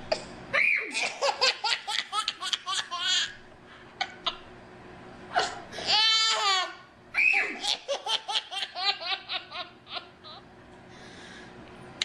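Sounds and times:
baby laughing: 0.9 - 3.4, 5.8 - 6.8, 7.4 - 10.4.

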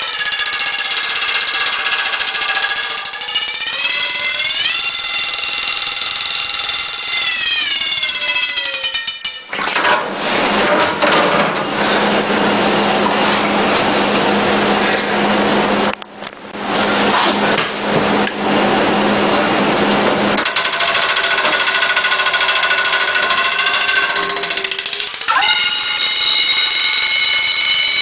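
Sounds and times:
alarm bells ringing under water: 0.0 - 9.6, 20.4 - 28.0.

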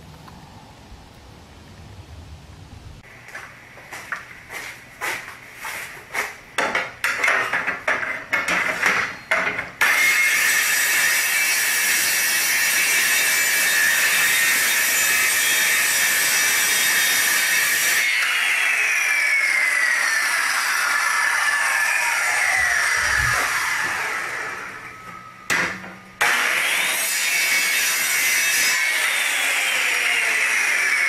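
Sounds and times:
circular saw cutting metal: 9.8 - 25.5, 26.2 - 31.0
saw blade spinning down: 16.9 - 25.4, 26.2 - 31.0.

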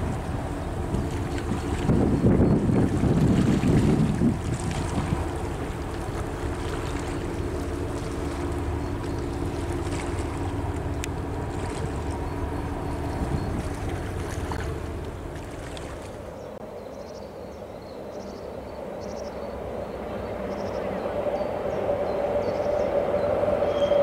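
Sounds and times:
wind on microphone: 0.0 - 16.3
ship diesel engine droning: 0.0 - 16.6, 19.6 - 24.0
water churning: 0.0 - 16.6.

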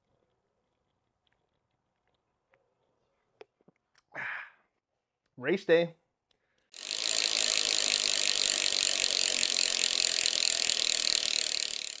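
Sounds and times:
bicycle freewheel ratchet clicking: 6.7 - 12.0.

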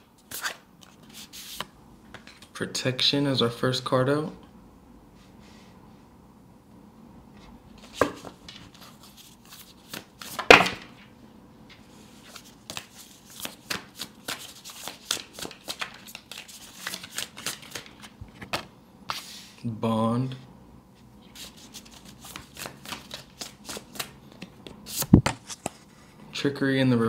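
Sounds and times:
cards shuffling: 7.8 - 11.0, 12.2 - 19.3, 21.3 - 25.9.

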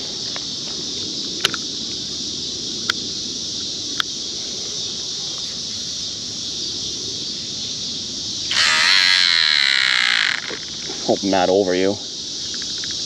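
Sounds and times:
insect chorus: 0.0 - 13.0
wavering whirr: 8.5 - 11.1.

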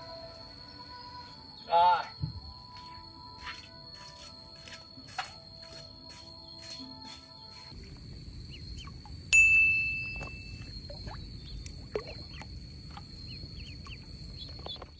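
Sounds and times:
ducklings peeping: 8.5 - 9.1, 11.0 - 14.9.

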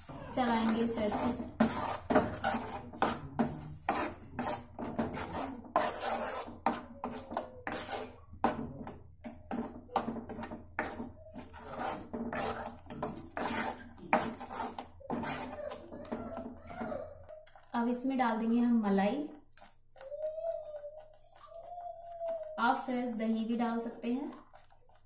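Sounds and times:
spoon scraping a pan: 0.0 - 17.7.

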